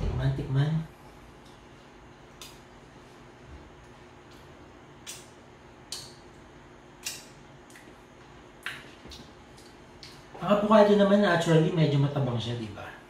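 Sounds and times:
faint steady hum: 0:00.0 - 0:13.0
lip smacks: 0:02.3 - 0:02.8, 0:03.8 - 0:10.4.

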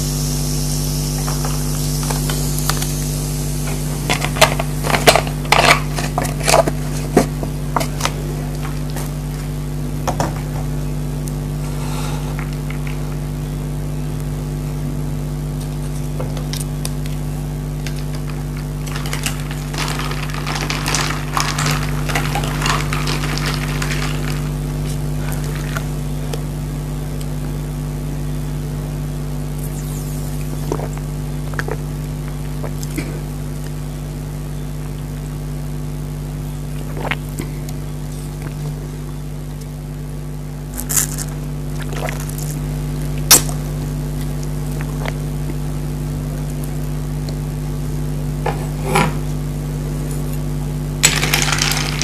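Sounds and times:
steady low hum: 0:00.0 - 0:52.0
ice crackling and clinking: 0:17.8 - 0:24.6, 0:51.0 - 0:52.0
soda fizzing: 0:18.8 - 0:24.6.

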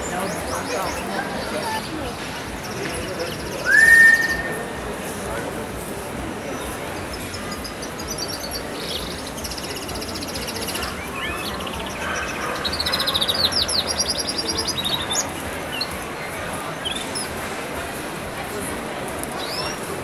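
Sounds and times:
steady background noise: 0:00.0 - 0:20.0
small birds chirping trills: 0:06.4 - 0:17.5.

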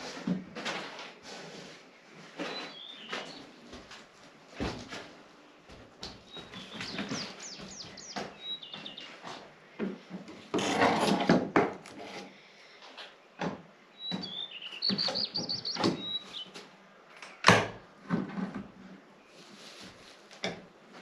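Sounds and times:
small bird chirping: 0:02.4 - 0:03.6, 0:06.2 - 0:09.2, 0:14.0 - 0:16.6.

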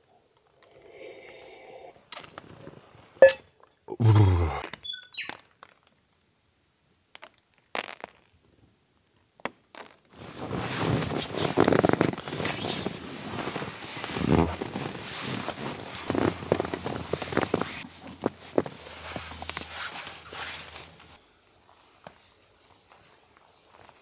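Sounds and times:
man humming: 0:03.9 - 0:04.7
boots rustling and scuffing: 0:09.8 - 0:24.0.

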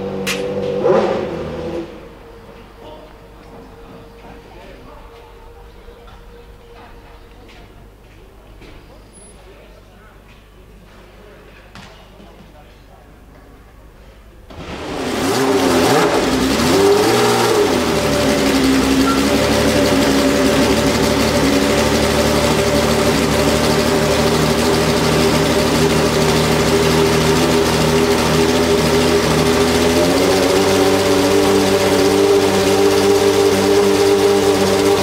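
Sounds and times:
racing car engine revving and idling: 0:00.0 - 0:02.7, 0:14.5 - 0:35.0.

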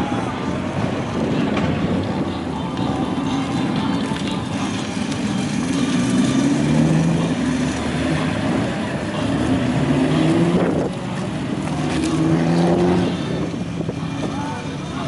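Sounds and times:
car engine revving: 0:04.4 - 0:14.3.

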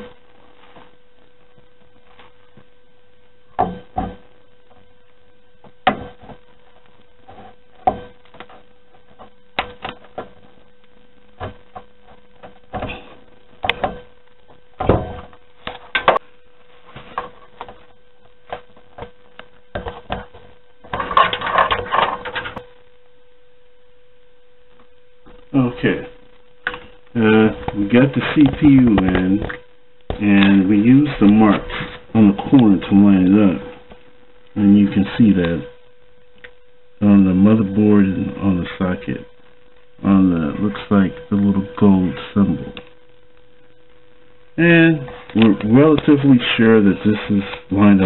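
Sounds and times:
steady hum: 0:00.0 - 0:48.0
clicks and knocks of computer parts: 0:19.7 - 0:22.6.

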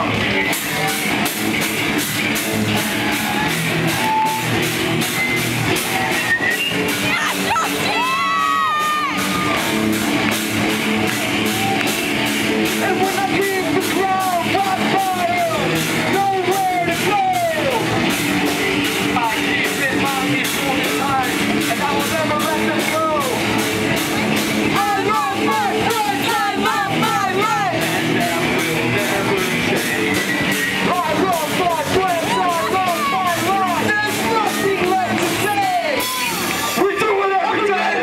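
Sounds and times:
drum kit beat: 0:00.0 - 0:37.3
bass guitar: 0:00.0 - 0:38.0
electric guitars: 0:00.0 - 0:38.0
person singing: 0:19.0 - 0:22.0, 0:24.7 - 0:36.4.

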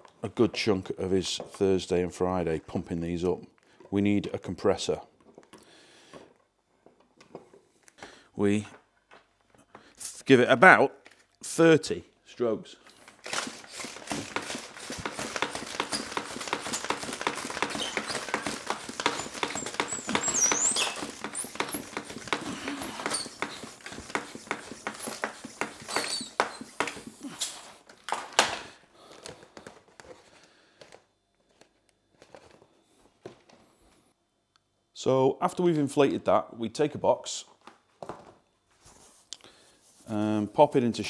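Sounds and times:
handling sounds: 0:12.8 - 0:33.7
bicycle pump strokes: 0:13.1 - 0:27.7
high squeaks: 0:15.5 - 0:27.4.

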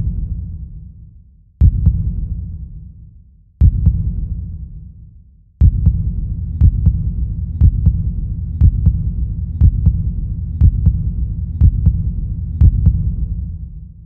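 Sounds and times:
heartbeat double thump: 0:01.6 - 0:02.2, 0:03.6 - 0:04.2, 0:05.6 - 0:13.2.

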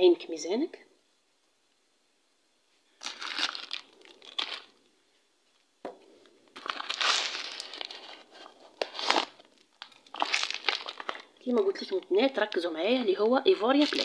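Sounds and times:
foil sachet crinkling: 0:03.0 - 0:04.8, 0:06.6 - 0:14.0.

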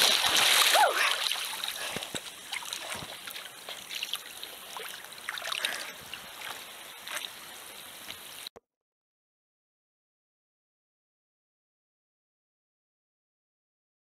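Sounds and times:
sea water lapping: 0:00.0 - 0:07.4
small water splashes: 0:00.0 - 0:07.6.

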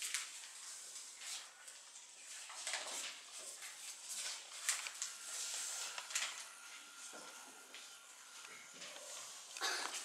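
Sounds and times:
paper rustling: 0:00.0 - 0:06.9.

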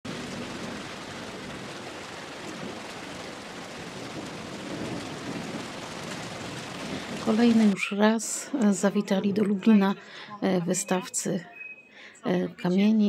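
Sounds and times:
steady rain falling: 0:00.0 - 0:10.2.

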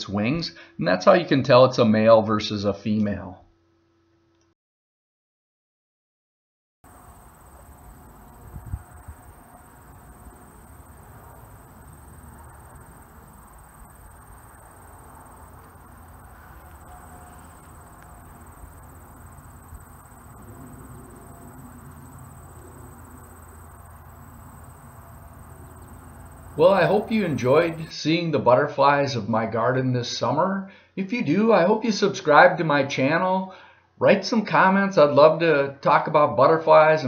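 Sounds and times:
insects trilling: 0:06.9 - 0:27.9
low rumble: 0:07.7 - 0:27.9.

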